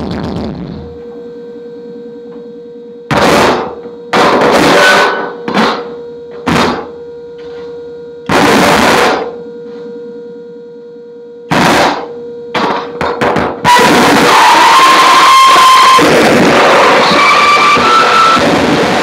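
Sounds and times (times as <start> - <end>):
loud distorted noise bursts: 0.0 - 1.1, 3.1 - 7.6, 8.3 - 9.4, 11.5 - 19.0
steady electronic hum tone: 0.0 - 19.0.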